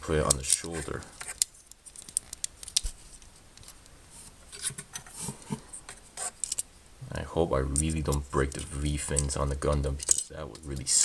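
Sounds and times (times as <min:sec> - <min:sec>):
plastic model parts clicking: 0:00.2 - 0:02.9, 0:07.7 - 0:11.0.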